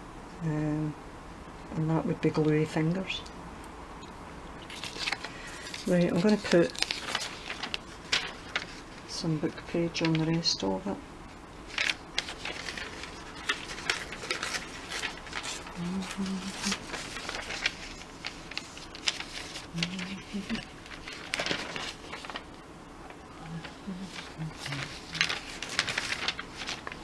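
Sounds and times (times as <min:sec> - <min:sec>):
paper rustling and crinkling: 0:04.6 - 0:10.6, 0:11.6 - 0:27.0.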